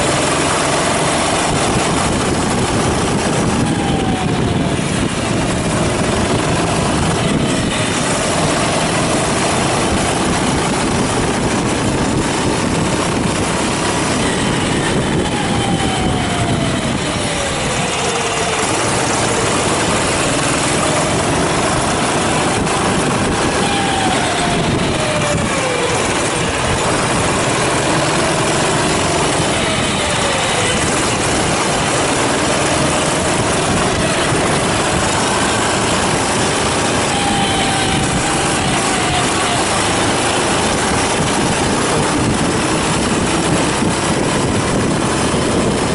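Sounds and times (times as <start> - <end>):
kart engine revving: 0.0 - 45.9
loud rushing noise: 0.0 - 45.9.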